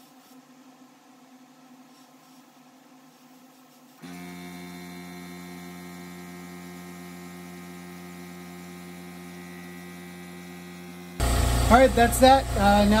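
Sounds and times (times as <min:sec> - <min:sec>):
compressor motor humming: 0:04.0 - 0:13.0.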